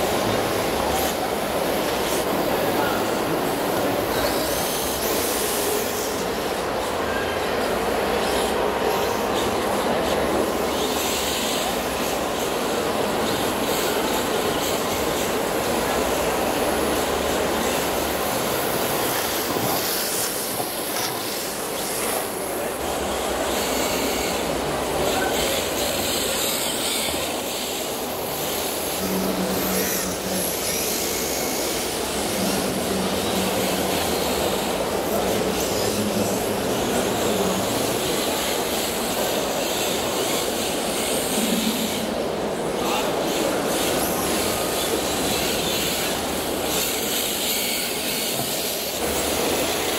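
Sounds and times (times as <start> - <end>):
crowd noise: 0.0 - 49.9
machine noise: 0.0 - 49.9.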